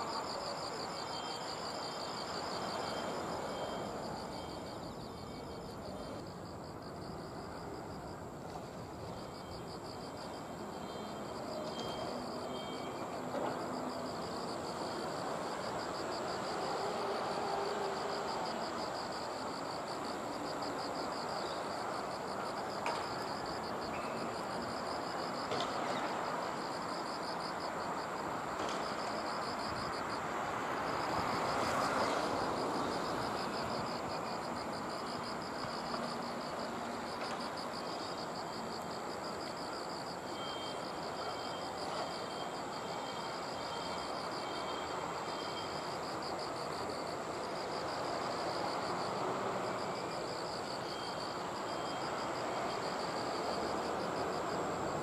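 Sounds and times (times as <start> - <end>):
insects chirping: 0.0 - 55.0
train rumbling past: 8.8 - 20.9.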